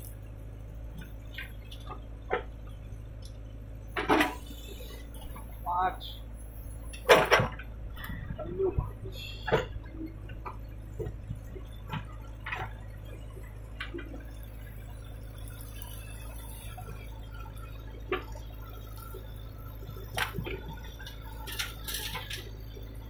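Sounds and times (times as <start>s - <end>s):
diesel engine droning: 0.0s - 23.0s
backhoe knocks and clatters: 0.9s - 2.9s, 3.9s - 4.6s, 6.9s - 14.4s, 20.0s - 23.0s.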